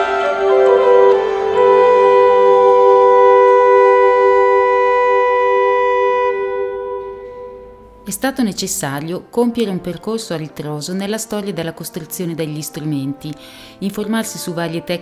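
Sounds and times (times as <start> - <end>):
organ viol and voice chord: 0.0 - 8.2.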